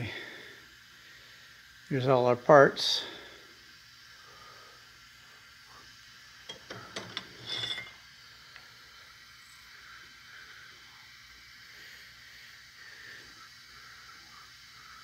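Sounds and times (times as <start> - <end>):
short metallic clicks and clinks: 6.5 - 8.0.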